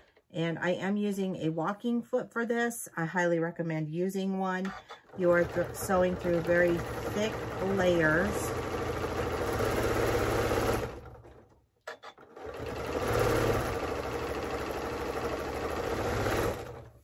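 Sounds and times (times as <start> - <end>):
sewing machine stitching: 4.6 - 17.0
sewing machine clicks: 4.7 - 17.0.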